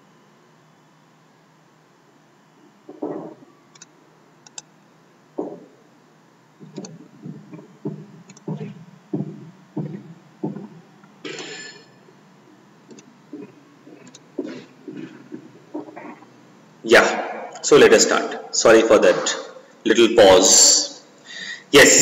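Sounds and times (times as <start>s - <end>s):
computer mouse clicks: 3.7s - 4.7s, 6.7s - 7.0s, 14.0s - 14.2s.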